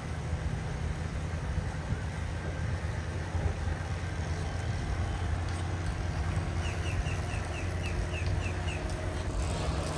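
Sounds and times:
wind buffeting the microphone: 0:00.0 - 0:09.9
bird chirping: 0:06.6 - 0:09.0.

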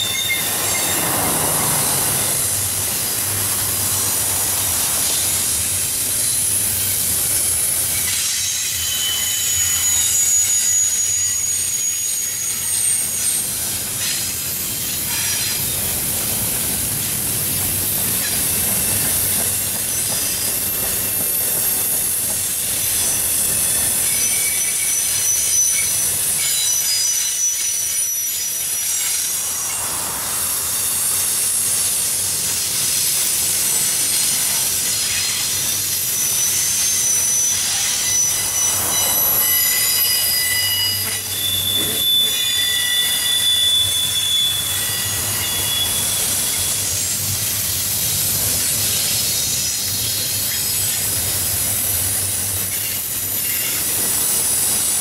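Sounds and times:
high-pitched wheel squeals: 0:00.0 - 0:03.2, 0:07.9 - 0:15.9, 0:18.0 - 0:47.2
steel wheels rolling on rail: 0:00.0 - 0:55.0.

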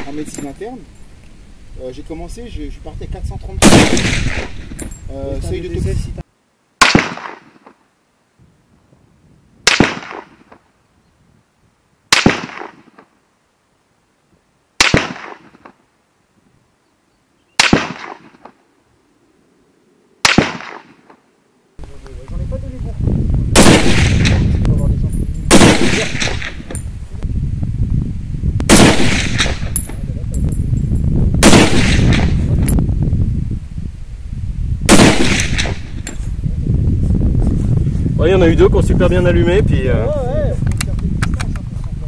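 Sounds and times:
rifle shots: 0:03.6 - 0:05.0, 0:06.8 - 0:07.8, 0:09.6 - 0:10.6, 0:12.1 - 0:13.0, 0:14.8 - 0:15.7, 0:17.6 - 0:18.6, 0:20.2 - 0:21.1, 0:23.6 - 0:24.6, 0:25.5 - 0:26.8, 0:28.7 - 0:29.8, 0:31.4 - 0:32.5, 0:34.9 - 0:36.1.

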